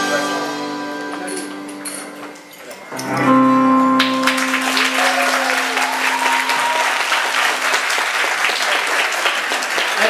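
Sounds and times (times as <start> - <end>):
live band holding note: 2.9 - 10.0
crowd applauding: 3.9 - 10.0.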